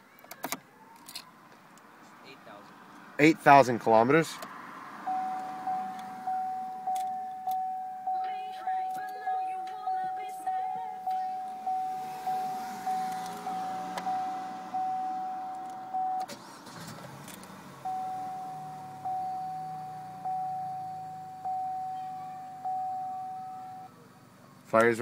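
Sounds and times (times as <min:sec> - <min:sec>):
car engine cranking and starting: 0:04.4 - 0:25.0
car warning chime: 0:05.0 - 0:16.9, 0:17.7 - 0:24.0
car engine idling: 0:05.0 - 0:25.0.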